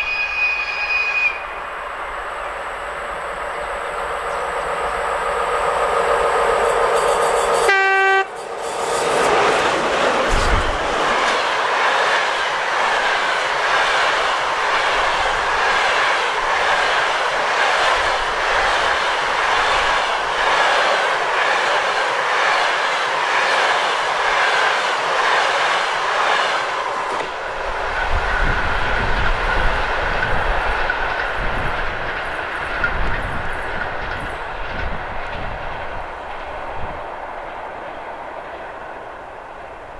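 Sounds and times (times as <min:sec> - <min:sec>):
low uneven train rumble: 0:01.4 - 0:39.9
train wheels clattering over rail joints: 0:08.3 - 0:36.8.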